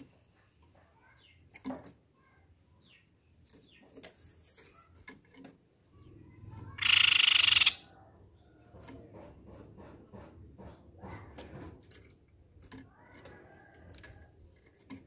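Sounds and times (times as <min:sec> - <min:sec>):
bird rattling trill: 0:04.0 - 0:05.4, 0:06.6 - 0:07.9
bird clicks and taps in cage: 0:08.7 - 0:15.0.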